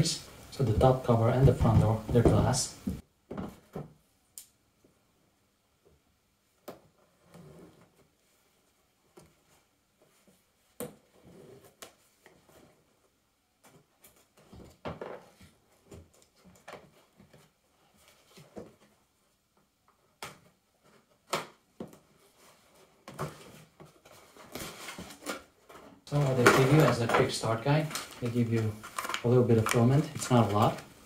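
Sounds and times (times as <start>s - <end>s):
cardboard rustling and scraping: 21.9s - 31.0s.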